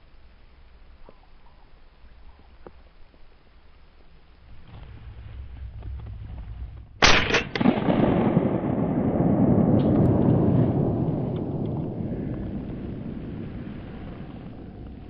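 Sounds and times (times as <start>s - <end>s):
loud low rumble: 4.5s - 15.0s
shotgun blasts: 7.0s - 13.2s.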